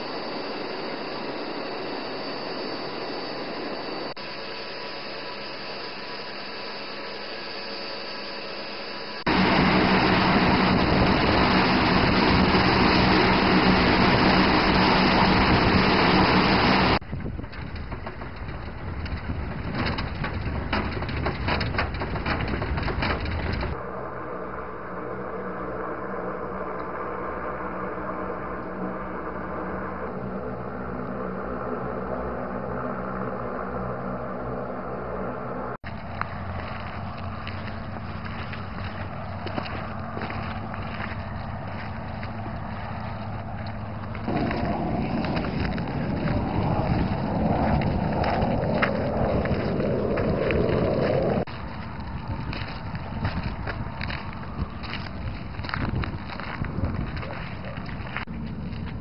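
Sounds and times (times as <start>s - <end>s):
aircraft engines roaring: 0.0s - 59.0s
vehicle engine running: 9.0s - 59.0s
clatter and sharp clicks: 17.0s - 23.8s.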